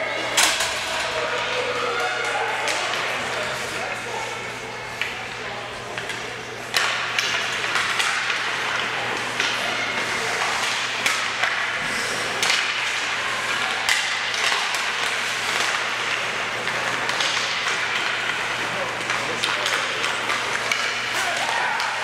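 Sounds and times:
hockey sticks and puck clacking: 0.0s - 22.0s
skates hissing on ice: 11.8s - 12.4s.

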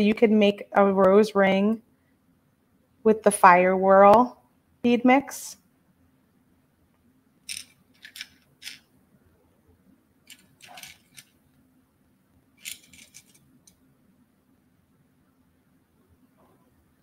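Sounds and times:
beads clicking against glass dish: 7.5s - 8.8s.

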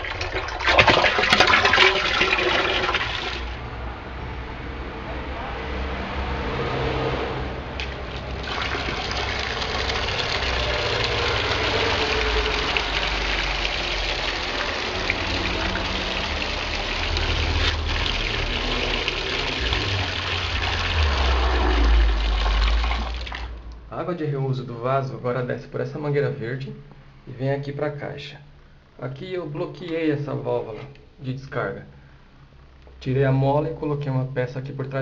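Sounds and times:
water gushing into plastic bucket: 0.0s - 3.6s, 7.8s - 23.6s
low rumble: 3.5s - 24.1s.

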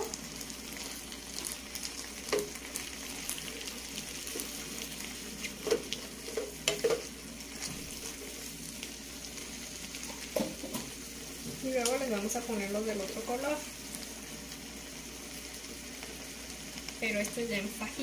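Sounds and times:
vegetables and meat sizzling in skillet: 0.0s - 18.0s
spoon knocking on pan: 2.3s - 2.5s, 5.6s - 7.1s, 10.3s - 10.9s.

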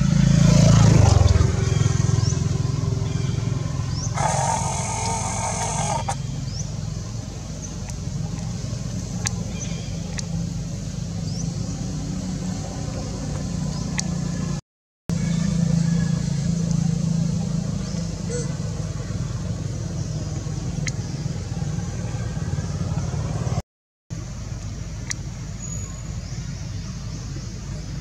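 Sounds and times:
low motor rumble: 0.0s - 28.0s
short high rising chirps: 4.1s - 6.2s.

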